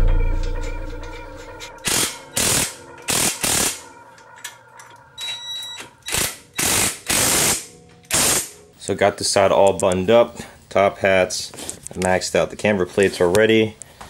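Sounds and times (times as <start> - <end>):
impact wrench rattling bursts: 6.0 - 8.6.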